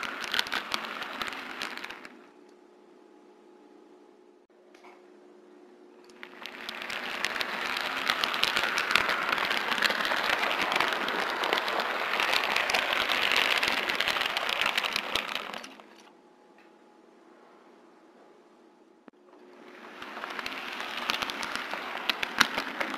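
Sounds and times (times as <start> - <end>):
model train wheels clattering on rails: 0.0 - 2.2, 6.1 - 16.1, 19.3 - 22.9.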